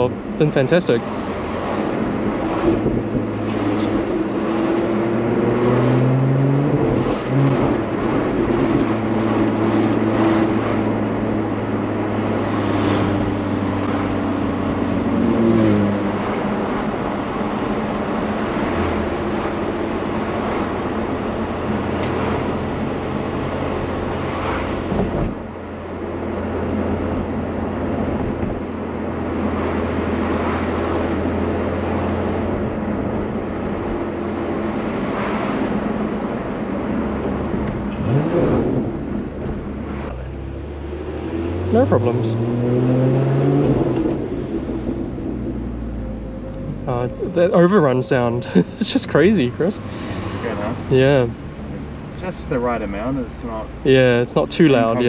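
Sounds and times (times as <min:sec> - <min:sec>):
car engine from cabin: 0:00.0 - 0:55.0
road noise: 0:00.0 - 0:55.0.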